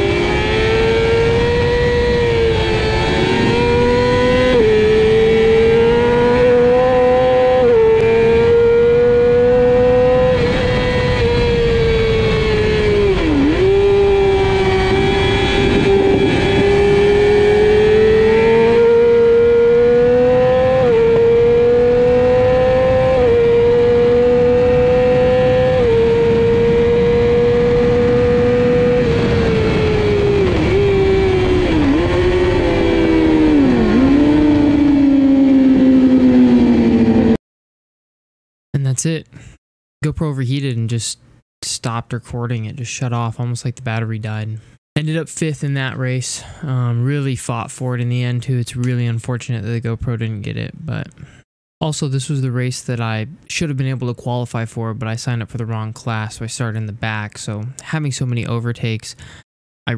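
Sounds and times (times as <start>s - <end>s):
motorcycle engine at high revs: 0.0s - 37.4s
rushing wind: 0.0s - 37.4s.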